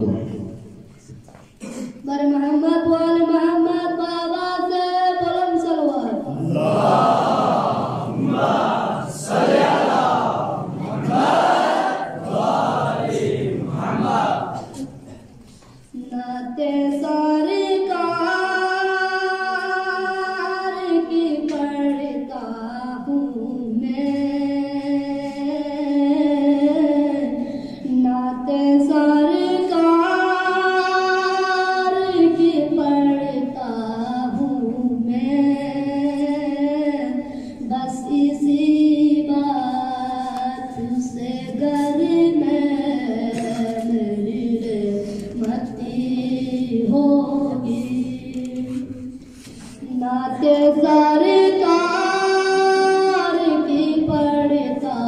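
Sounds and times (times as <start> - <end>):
boy singing unaccompanied: 2.0 - 6.6, 15.9 - 49.2, 49.8 - 55.0.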